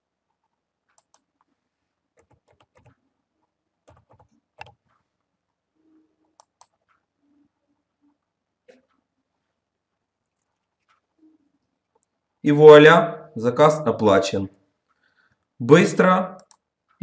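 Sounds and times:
keyboard typing: 0.4s - 1.5s, 2.2s - 3.0s, 3.8s - 5.0s, 5.8s - 7.4s, 16.3s - 17.0s.

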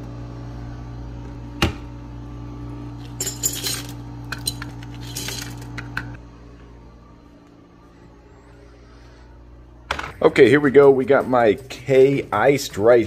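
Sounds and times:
steady low hum: 0.0s - 13.0s
ice cubes clinking against glass: 3.1s - 5.8s.

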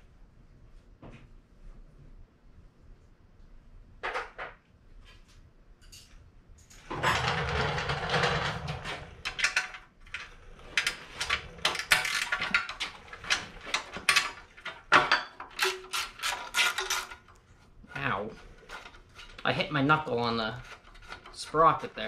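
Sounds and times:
rumbling scrape: 6.8s - 14.8s.

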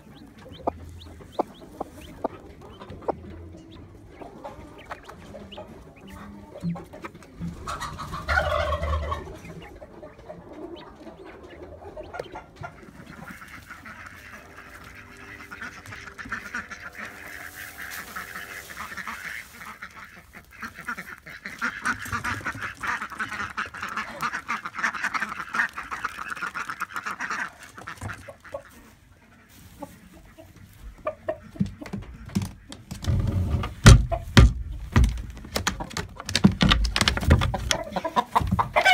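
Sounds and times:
chickens clucking: 0.0s - 38.9s
loud knocks and thumps: 31.7s - 37.8s.

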